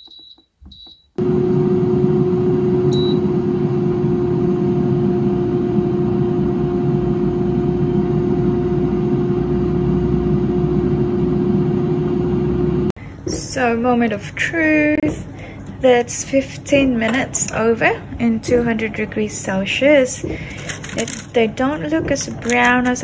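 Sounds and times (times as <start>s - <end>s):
appliance beeps: 0.0s - 4.2s
air fryer fan humming: 0.7s - 23.0s.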